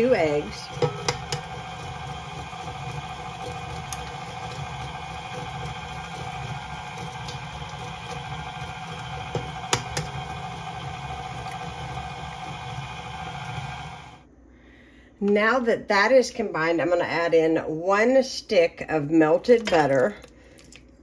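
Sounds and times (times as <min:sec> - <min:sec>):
stand mixer motor hum: 0:00.0 - 0:14.2.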